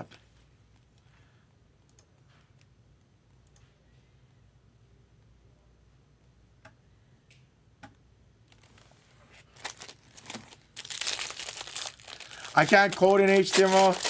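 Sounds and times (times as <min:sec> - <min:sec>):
packaging rustling and crinkling: 0:08.5 - 0:14.0.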